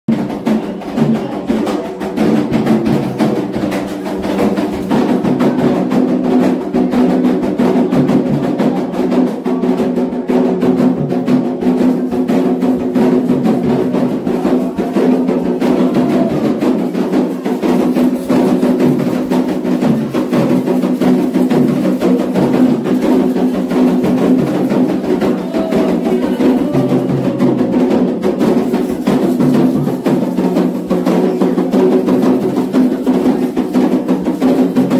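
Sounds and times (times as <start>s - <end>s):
hand drums beating fast rhythm: 0.1s - 34.9s
group of voices singing: 14.2s - 16.9s, 23.0s - 29.6s.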